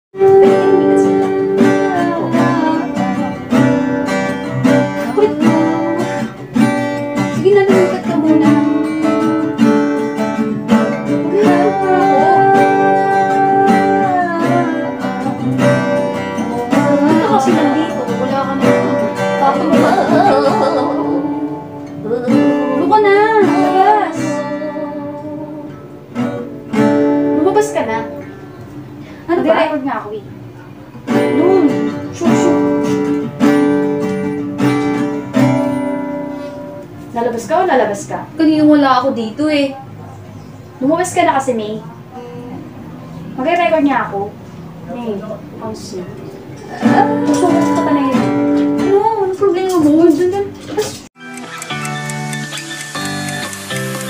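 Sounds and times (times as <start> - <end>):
acoustic guitar strumming: 0.1 - 54.0
woman singing: 0.2 - 3.9, 4.6 - 10.0, 11.1 - 26.5, 46.6 - 51.0.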